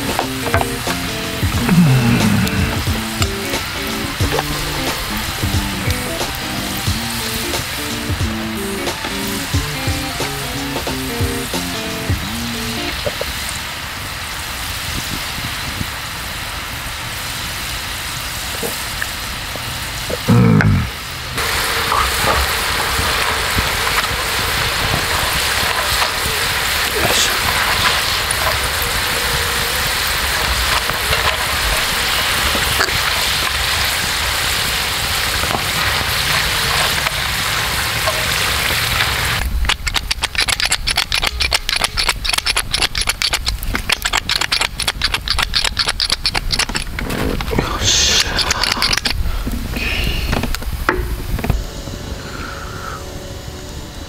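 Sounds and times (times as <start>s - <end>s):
oil sizzling with frying potatoes: 0.0s - 51.4s.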